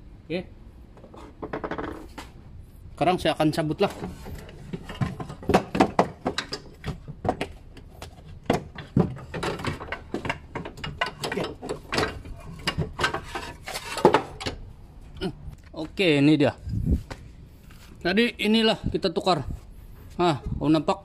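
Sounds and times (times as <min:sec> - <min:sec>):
metallic clicks knocks and scrapes: 0:03.8 - 0:14.7.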